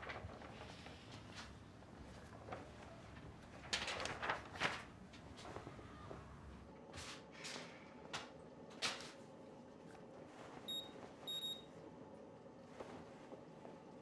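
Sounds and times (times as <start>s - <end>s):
washing machine beeps: 10.6s - 11.8s.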